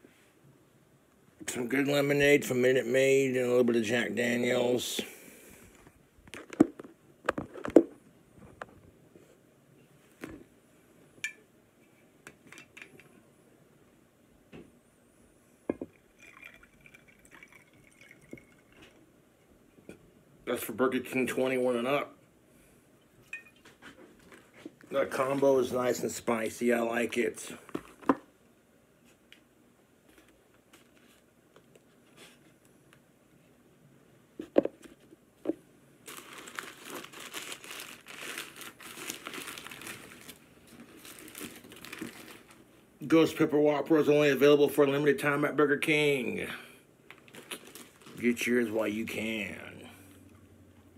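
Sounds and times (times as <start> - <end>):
whiskey pouring into a mug: 15.7 - 19.0
glass clinking: 23.3 - 23.6
paper wrapper crumpling: 36.0 - 42.6, 47.1 - 48.7.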